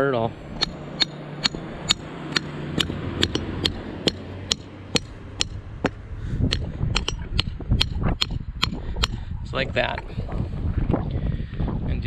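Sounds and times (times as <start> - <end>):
hammer tapping steel bolt: 0.6 - 8.8.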